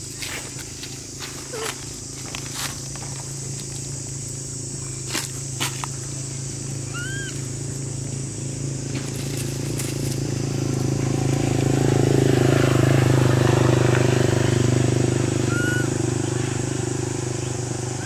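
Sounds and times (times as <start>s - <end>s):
passing vehicle engine: 6.1s - 18.0s.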